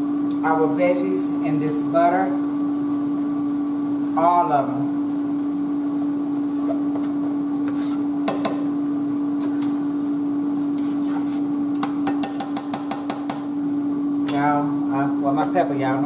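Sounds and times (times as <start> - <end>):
steady hum: 0.0 - 16.0
metal spoon knocking on pot: 12.0 - 13.4.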